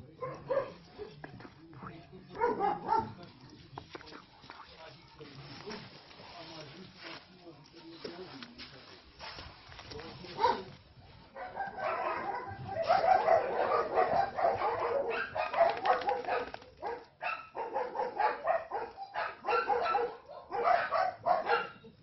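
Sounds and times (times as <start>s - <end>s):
puppies barking and yapping: 11.3s - 21.8s.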